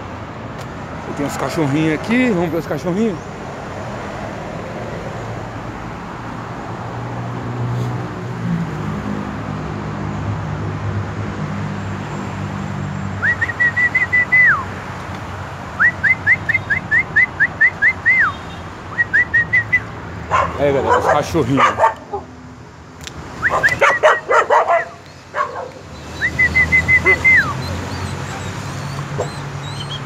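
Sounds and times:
road traffic rumble: 0:00.0 - 0:30.0
dogs whining: 0:23.4 - 0:30.0.

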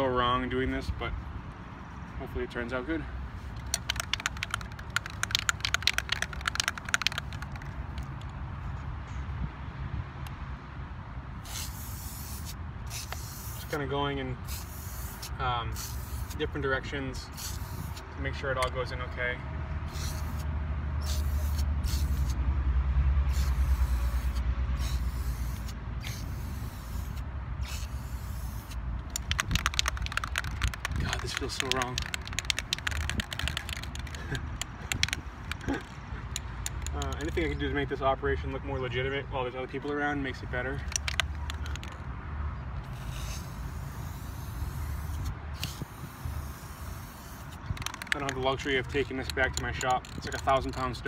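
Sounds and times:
spray can ball rattling: 0:03.4 - 0:08.4, 0:11.4 - 0:13.8, 0:14.5 - 0:16.4, 0:17.3 - 0:18.0, 0:19.9 - 0:20.4, 0:21.0 - 0:22.3, 0:23.3 - 0:37.6, 0:40.7 - 0:42.0, 0:42.8 - 0:51.0
mixing ball rattling in can: 0:03.6 - 0:08.3, 0:29.0 - 0:37.6, 0:40.8 - 0:42.0, 0:47.7 - 0:50.8.

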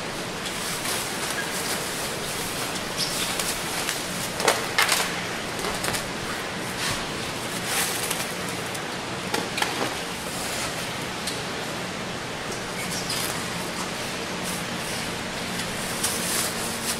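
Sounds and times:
plastic wrapping crinkling: 0:00.4 - 0:08.7, 0:15.6 - 0:16.9.

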